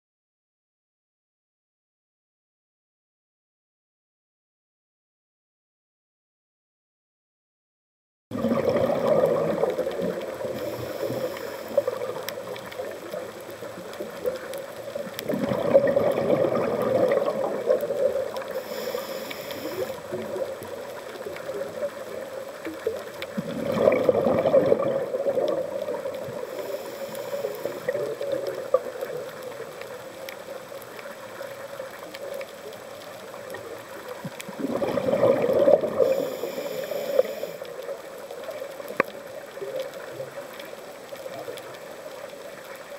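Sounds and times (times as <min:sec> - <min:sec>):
exhaled bubbles underwater: 0:08.3 - 0:42.9
steady underwater drone: 0:08.3 - 0:42.9
faint clicks: 0:08.4 - 0:42.9
regulator hiss: 0:10.4 - 0:12.2, 0:18.4 - 0:20.1, 0:26.4 - 0:28.1, 0:36.0 - 0:37.7.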